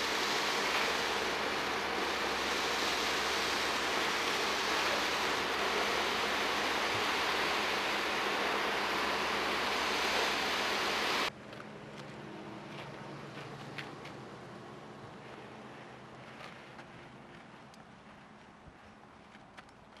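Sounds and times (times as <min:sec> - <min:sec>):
concrete pump rushing noise: 0:00.0 - 0:11.3.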